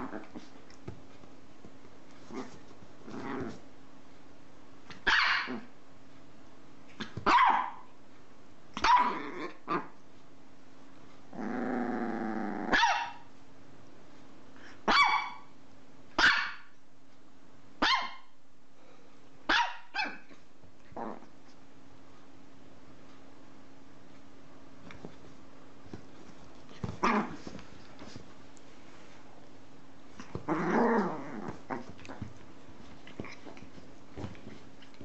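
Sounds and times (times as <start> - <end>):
dog growling: 2.3 - 3.6, 11.3 - 12.8, 20.9 - 21.3, 30.2 - 32.3
small dog barking: 5.0 - 5.7, 7.0 - 7.9, 8.8 - 9.9, 12.7 - 13.3, 14.8 - 15.5, 16.2 - 16.7, 17.8 - 18.3, 19.5 - 20.3.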